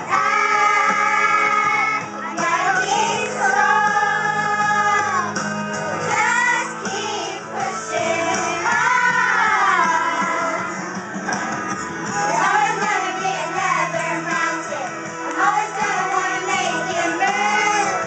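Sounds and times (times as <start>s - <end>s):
girls singing together: 0.0s - 10.8s, 12.1s - 18.0s
backing music: 0.0s - 18.0s.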